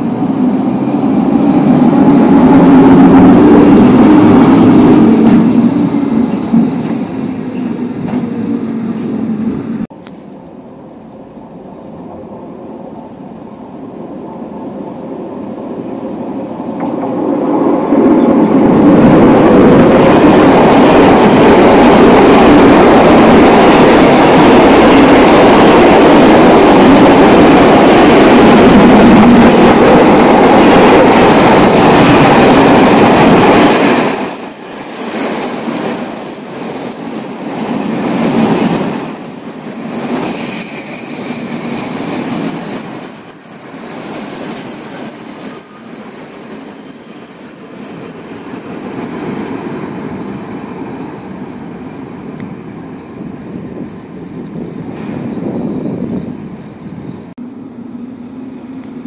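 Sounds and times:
freight train passing: 0:00.0 - 0:59.0
high-pitched wheel squeals: 0:05.6 - 0:06.0, 0:34.5 - 0:50.7.

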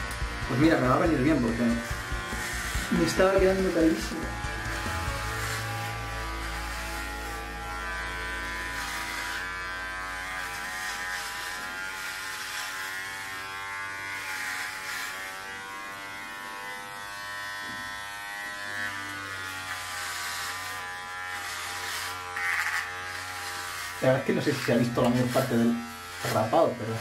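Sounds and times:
electric hair clipper buzzing: 0:00.0 - 0:27.0.

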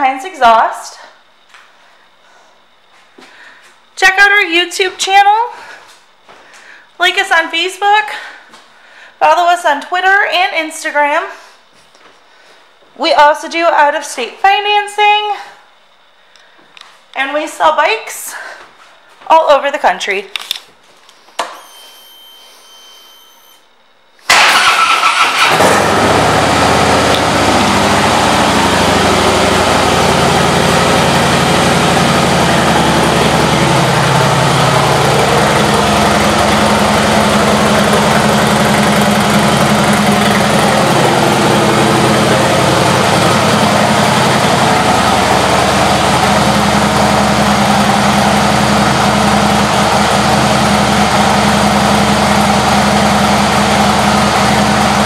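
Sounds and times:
motorcycle engine idling: 0:26.0 - 0:55.0.

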